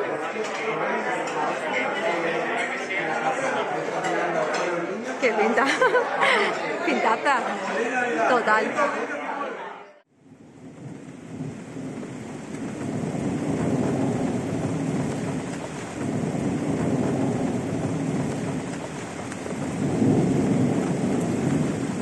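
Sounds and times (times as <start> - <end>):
steady rain: 10.1 - 22.0
thunder rolling: 10.1 - 22.0.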